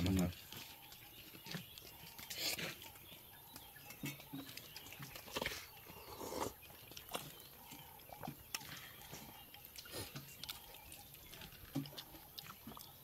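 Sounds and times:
man slurping broth: 0:06.1 - 0:06.6.

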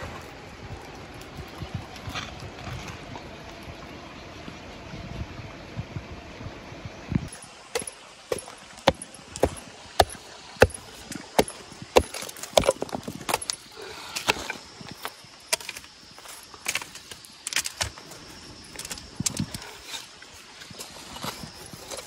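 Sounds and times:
pick scraping clay: 0:07.3 - 0:22.0.

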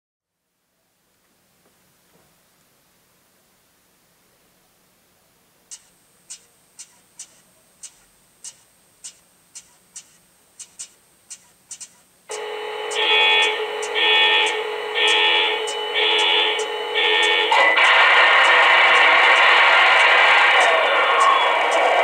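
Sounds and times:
steady electrical hum: 0:00.4 - 0:22.0
sharp clicks: 0:05.7 - 0:22.0
pulsing beep tone: 0:12.3 - 0:21.9.

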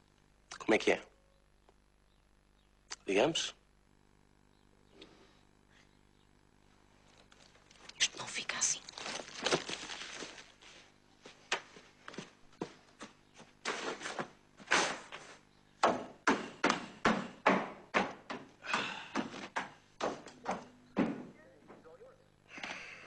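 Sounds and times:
irregular knocks and taps: 0:15.8 - 0:21.9.

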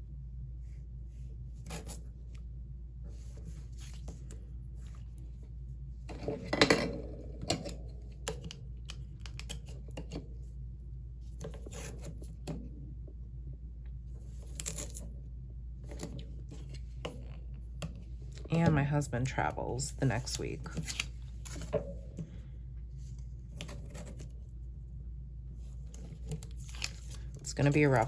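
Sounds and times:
steady low hum: 0:00.0 - 0:28.0
paper rustling: 0:20.2 - 0:21.7, 0:25.8 - 0:28.0
tape peeling and tearing: 0:26.4 - 0:27.3.

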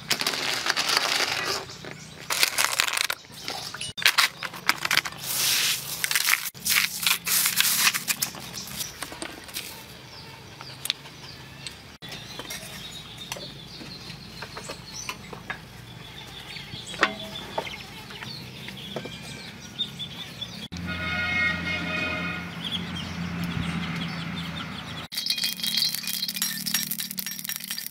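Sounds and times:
ice crunching on shells: 0:00.0 - 0:08.9, 0:25.1 - 0:27.9.

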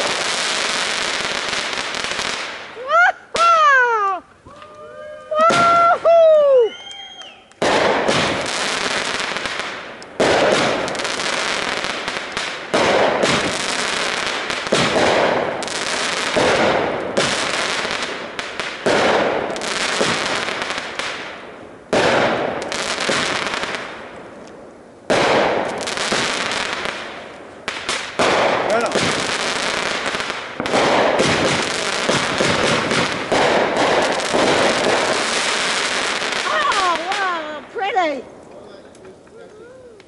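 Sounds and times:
firework crackling: 0:00.0 - 0:40.0
firework aerial shots: 0:05.4 - 0:06.2, 0:07.0 - 0:24.2, 0:25.1 - 0:37.8.

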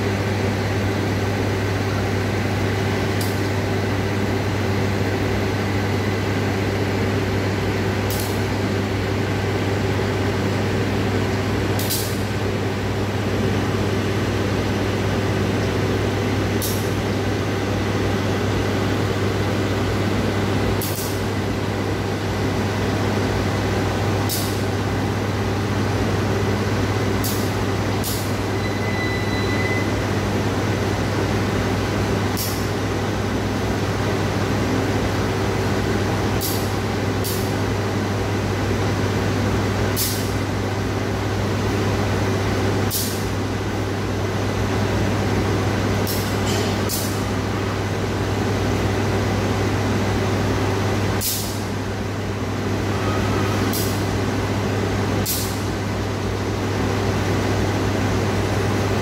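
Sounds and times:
short sharp air hisses: 0:51.2 - 0:51.6.

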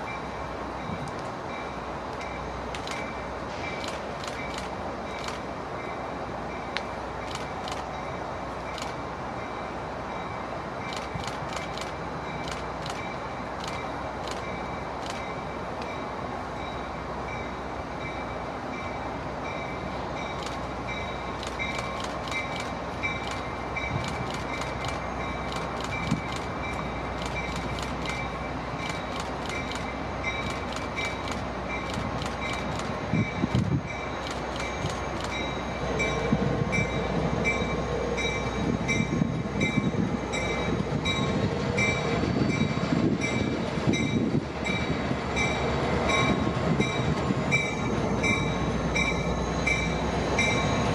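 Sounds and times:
diesel locomotive engines running: 0:00.0 - 0:50.9
wheels squealing on rail: 0:12.2 - 0:50.9
metallic clicks: 0:21.4 - 0:33.0.

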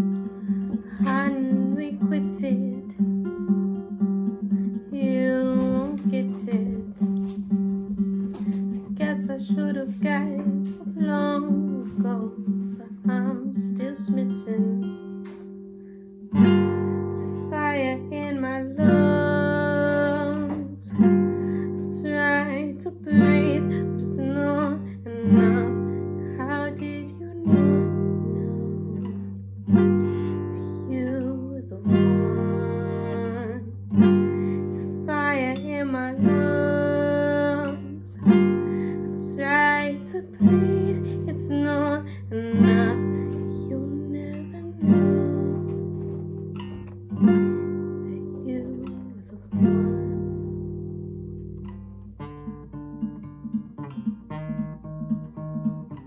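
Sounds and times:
woman singing: 0:00.0 - 0:03.3, 0:04.4 - 0:07.6, 0:08.3 - 0:15.1, 0:17.0 - 0:29.3, 0:30.0 - 0:46.7, 0:48.1 - 0:50.3
strummed classical guitar: 0:00.0 - 0:56.0.

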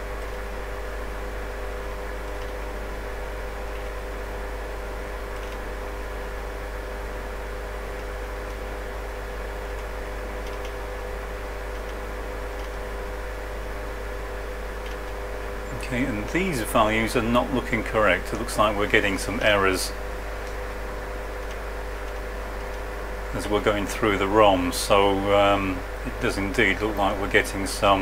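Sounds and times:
cooling fans whirring: 0:00.0 - 0:28.0
electrical hum: 0:00.0 - 0:28.0
faint clicks: 0:05.3 - 0:05.6, 0:09.6 - 0:10.8, 0:11.7 - 0:12.8, 0:21.4 - 0:22.8.

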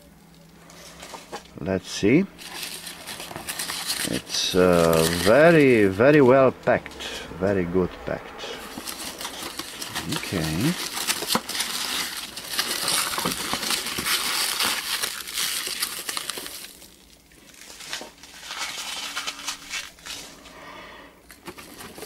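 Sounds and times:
hands rummaging in packing material: 0:02.0 - 0:06.4, 0:08.6 - 0:20.6, 0:21.2 - 0:22.0.

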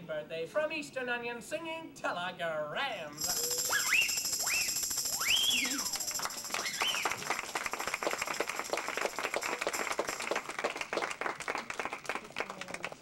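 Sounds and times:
people applauding: 0:03.2 - 0:13.0.

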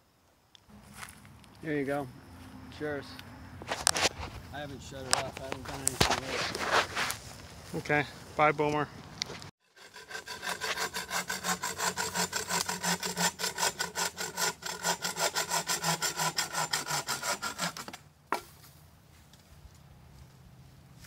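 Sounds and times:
bow saw cutting wood: 0:09.6 - 0:18.5.

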